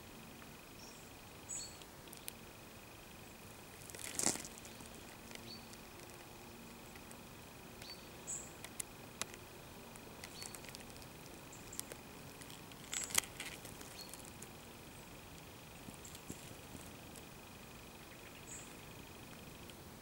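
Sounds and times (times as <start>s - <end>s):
high chirps and clicks: 7.8s - 14.5s.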